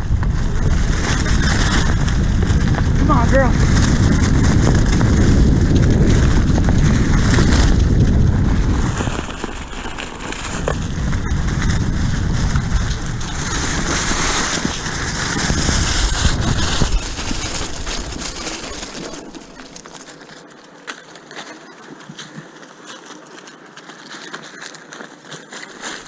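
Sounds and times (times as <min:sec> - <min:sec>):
wind buffeting microphone: 0:00.0 - 0:19.8.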